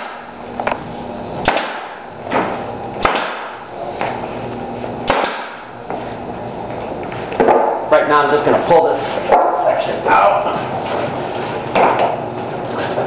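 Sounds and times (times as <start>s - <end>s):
pneumatic nail gun shots: 0.0s - 0.3s, 1.4s - 3.7s, 5.0s - 5.7s.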